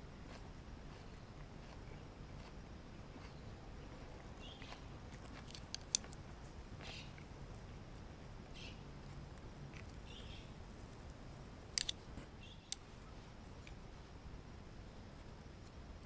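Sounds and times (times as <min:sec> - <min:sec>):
grill crackles and ticks: 0:04.4 - 0:07.6.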